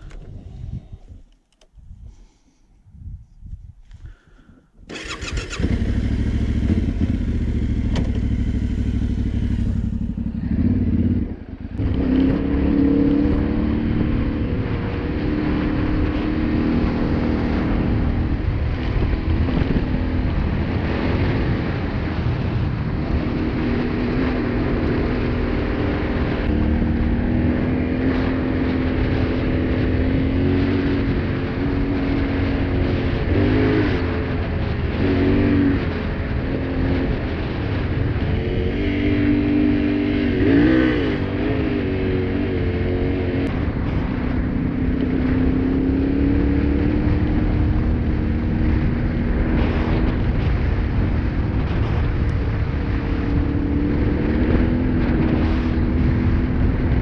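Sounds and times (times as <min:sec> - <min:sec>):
motorcycle riding through gears: 0:04.0 - 0:57.0
motorcycle engine starting: 0:04.8 - 0:13.3.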